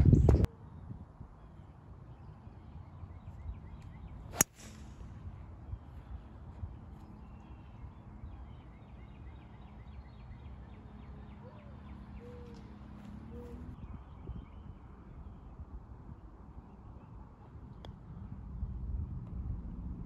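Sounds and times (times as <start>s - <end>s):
wind rumbling on microphone: 0.0s - 1.5s, 13.3s - 20.0s
distant birds calling: 0.5s - 15.4s.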